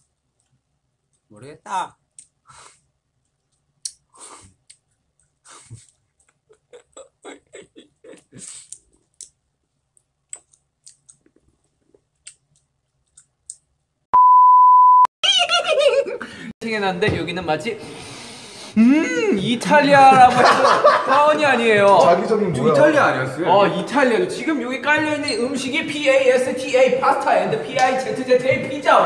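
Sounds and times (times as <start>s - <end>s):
soft mouth noises: 2.2s - 9.4s, 10.0s - 13.7s
electronic beep: 14.2s - 15.1s.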